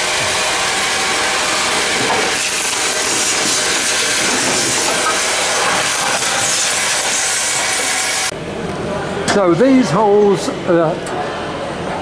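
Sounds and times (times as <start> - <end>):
vacuum cleaner running: 0.0 - 8.3.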